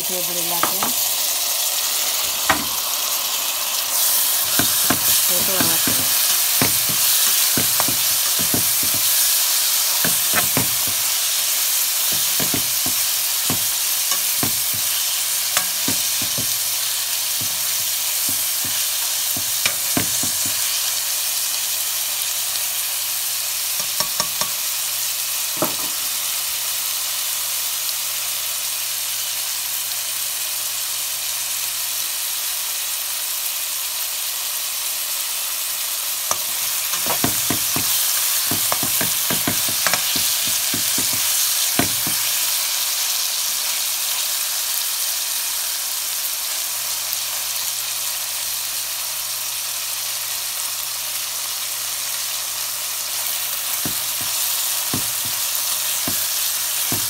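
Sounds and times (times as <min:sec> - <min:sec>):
vegetables sizzling in hot oil: 0:00.0 - 0:57.0
spatula scraping and knocking pan: 0:00.6 - 0:01.0, 0:02.4 - 0:02.9, 0:04.0 - 0:20.9, 0:25.6 - 0:26.1, 0:36.3 - 0:42.6, 0:53.7 - 0:57.0.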